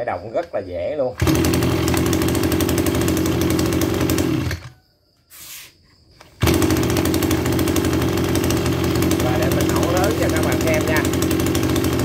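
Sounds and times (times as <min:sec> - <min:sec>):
brush cutter engine idling: 0:00.3 - 0:04.7, 0:06.2 - 0:12.0
recoil starter pull: 0:01.0 - 0:04.8, 0:06.2 - 0:12.0.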